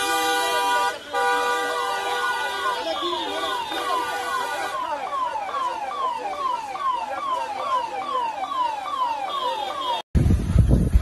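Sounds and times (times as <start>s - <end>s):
vehicle siren falling wails: 2.2s - 10.0s.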